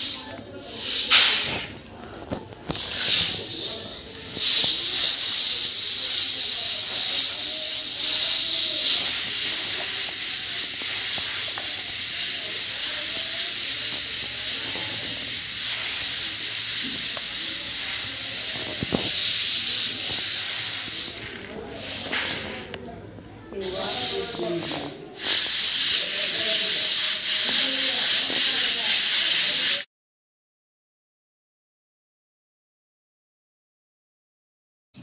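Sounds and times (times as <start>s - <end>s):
dry grain rustling in sieve: 0.0s - 1.6s, 2.7s - 22.7s, 23.6s - 29.8s.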